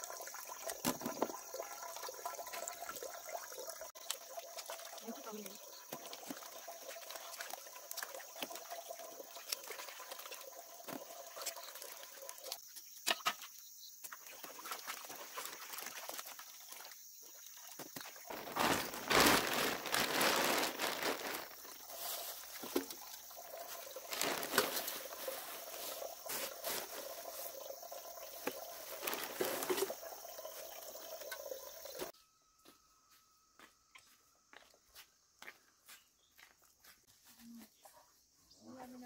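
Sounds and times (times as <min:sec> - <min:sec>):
water sloshing and trickling: 0:00.0 - 0:32.2
roots dropping into basket: 0:18.3 - 0:21.7, 0:24.1 - 0:25.4.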